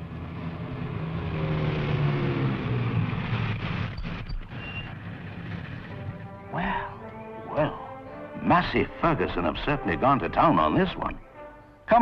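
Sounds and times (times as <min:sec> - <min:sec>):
car engine revving: 0:00.0 - 0:07.0.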